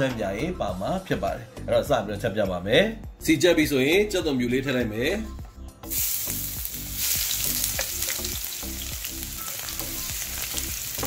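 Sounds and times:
garlic sizzling in oil: 5.9s - 11.0s.

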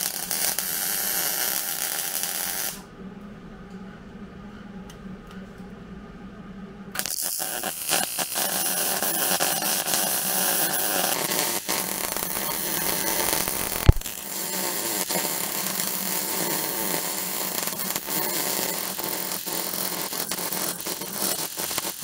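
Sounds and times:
welder arc crackling and sizzling: 0.0s - 2.9s, 7.0s - 22.0s
sharp pop: 13.8s - 14.1s.

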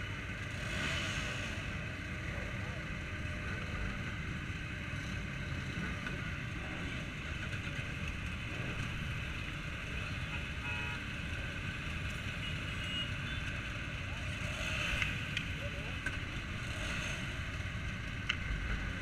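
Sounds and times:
motorcycle engines idling: 0.0s - 19.0s.

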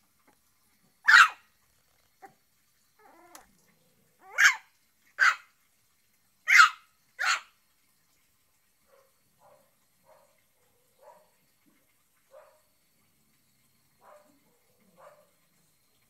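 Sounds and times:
puppy yapping: 1.0s - 1.4s, 4.2s - 5.4s, 6.5s - 7.5s
puppy whining: 3.0s - 3.5s.

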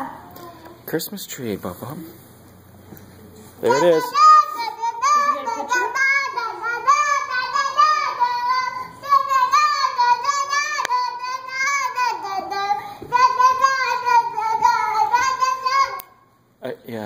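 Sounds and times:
child singing wordlessly: 3.6s - 16.3s.

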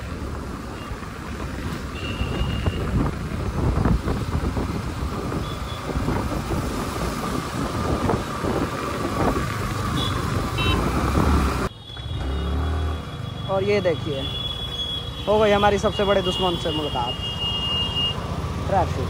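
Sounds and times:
motorcycle and vehicle engines rumbling: 0.0s - 19.0s
road traffic noise: 0.0s - 19.0s
wind buffeting microphone: 2.2s - 11.7s.

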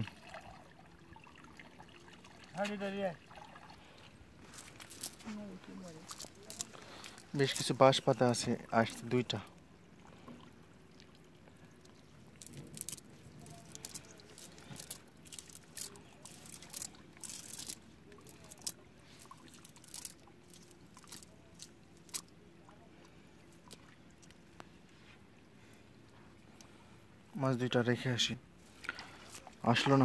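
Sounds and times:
net rustling on wet mud: 4.4s - 7.8s, 12.4s - 22.3s.

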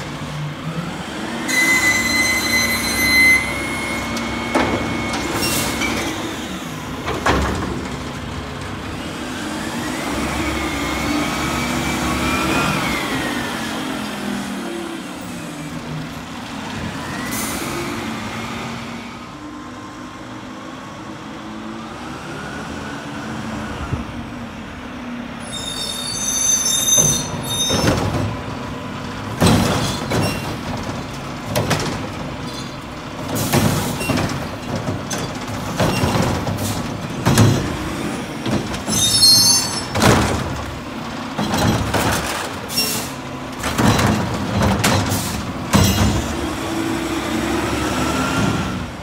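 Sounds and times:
garbage truck engine and hydraulics: 0.0s - 49.0s
brake squeals: 1.4s - 6.5s, 25.4s - 28.1s, 29.7s - 30.8s, 32.4s - 37.2s, 38.7s - 40.1s, 41.4s - 44.1s
metallic clanks and bangs: 27.0s - 42.7s, 43.6s - 46.4s.

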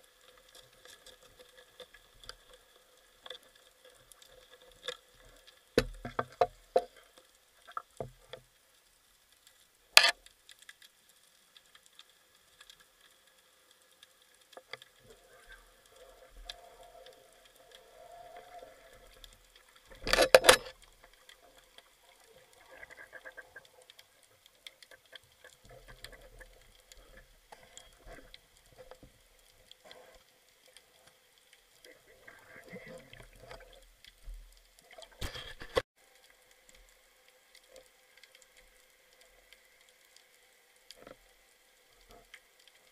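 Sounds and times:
underwater clicks and knocks: 5.7s - 7.0s, 19.9s - 21.4s.

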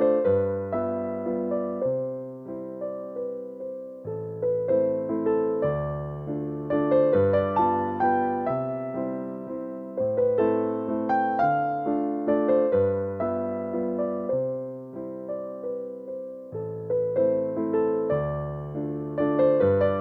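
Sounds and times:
keyboard music with piano chords: 0.0s - 20.0s.

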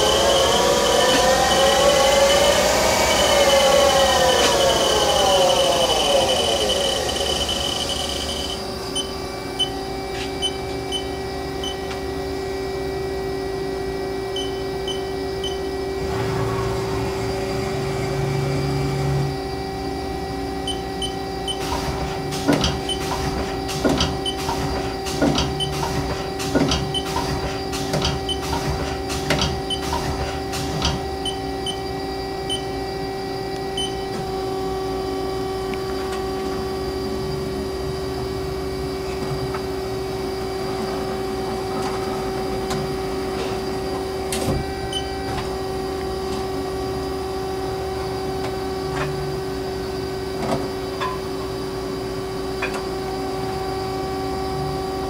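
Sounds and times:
high steady tone: 0.0s - 11.9s
lathe machine hum: 0.0s - 25.2s
low drone: 15.7s - 20.6s.

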